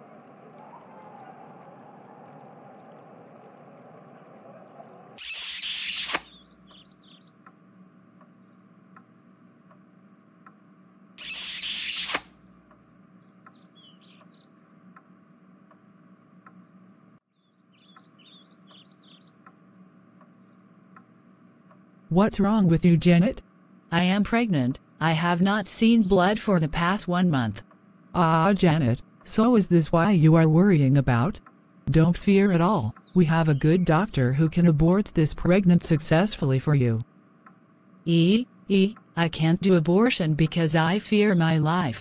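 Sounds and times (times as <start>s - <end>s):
small bird chirping: 5.2s - 12.2s, 12.8s - 15.4s, 16.5s - 21.8s, 32.7s - 33.9s.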